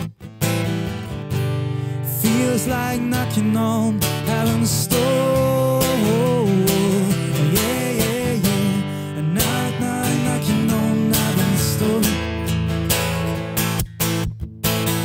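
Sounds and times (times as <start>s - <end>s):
acoustic guitar strumming: 0.0s - 15.0s
wordless singing: 2.1s - 12.4s.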